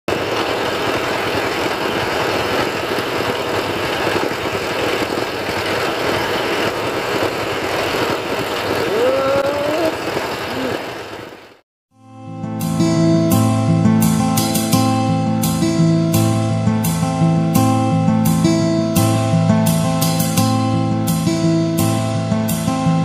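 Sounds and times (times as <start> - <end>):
diesel engine running: 0.1 - 11.6.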